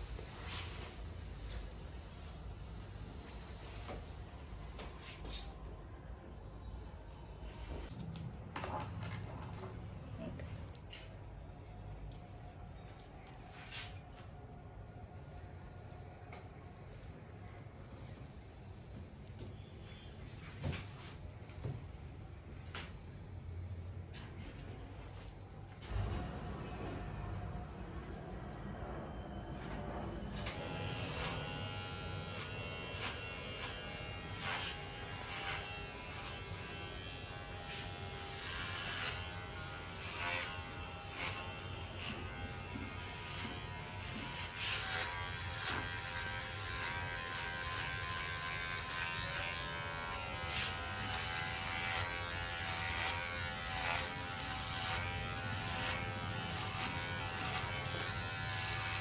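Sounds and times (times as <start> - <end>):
electric hair clipper buzzing: 30.5 - 59.0.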